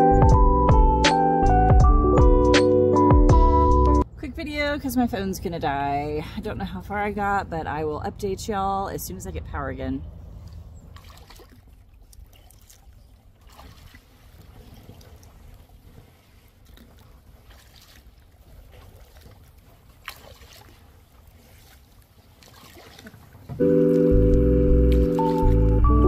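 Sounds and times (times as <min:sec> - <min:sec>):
background music: 0:00.0 - 0:04.0, 0:23.6 - 0:26.0
faint splashes: 0:10.1 - 0:24.2, 0:24.8 - 0:25.7
water dripping off paddle: 0:10.4 - 0:25.8.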